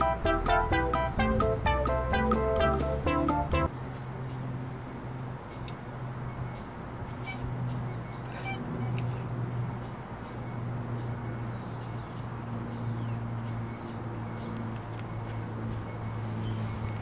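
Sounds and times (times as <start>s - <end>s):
high-pitched chirps: 0.0s - 3.7s.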